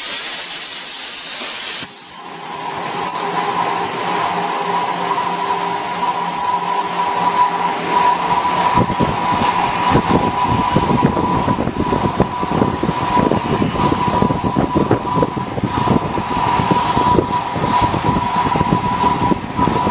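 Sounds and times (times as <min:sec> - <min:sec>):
plasma arc hissing and crackling: 0:00.0 - 0:07.5
high-pitched whine: 0:00.0 - 0:19.9.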